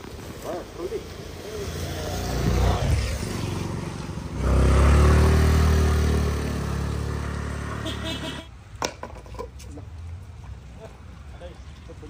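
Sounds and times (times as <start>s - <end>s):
vehicle engine passing by: 1.4s - 8.5s.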